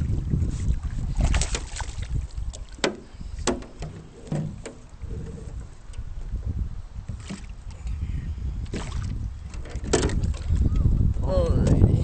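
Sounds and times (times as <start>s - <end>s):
fish splashing in water: 0.8s - 2.9s.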